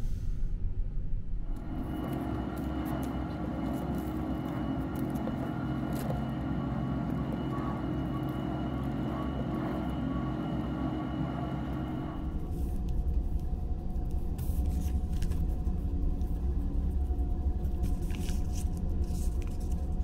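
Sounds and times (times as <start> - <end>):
ferry engines droning: 1.4 - 20.0
paper rustling: 14.0 - 15.6, 17.6 - 20.0.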